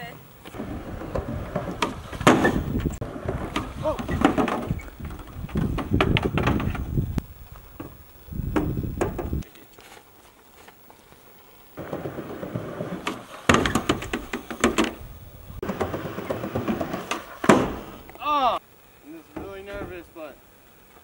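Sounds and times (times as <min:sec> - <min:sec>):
skateboard rolling on metal roof: 0:00.4 - 0:09.4, 0:11.8 - 0:18.2
skateboard clacks and knocks: 0:15.6 - 0:17.9.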